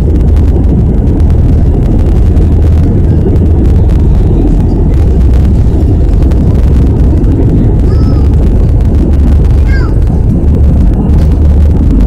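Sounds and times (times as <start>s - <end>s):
jet engine noise: 0.0s - 12.0s
wheel rumble: 0.0s - 12.0s.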